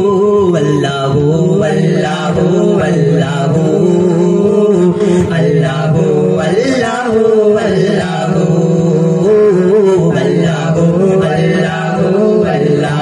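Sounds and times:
male voices singing: 0:00.0 - 0:13.0.

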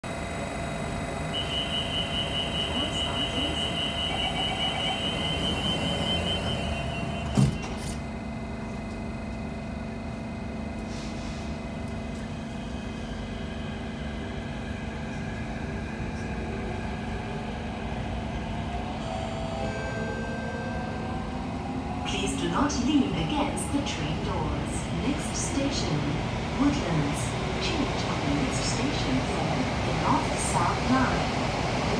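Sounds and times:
train humming: 0:00.0 - 0:31.9
traction motor whine: 0:00.1 - 0:09.5
rapid high door warning beeps: 0:01.3 - 0:07.8.

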